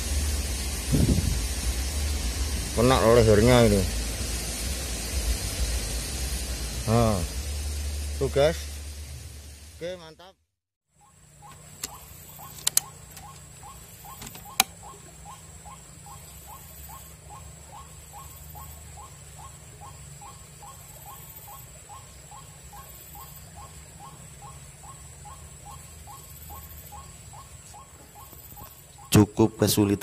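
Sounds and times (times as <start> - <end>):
sharp click: 11.8 - 13.4, 14.2 - 14.8.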